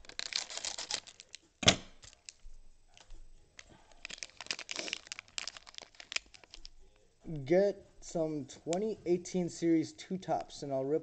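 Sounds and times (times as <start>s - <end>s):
plastic wrapper crinkling and tearing: 0.0s - 7.1s.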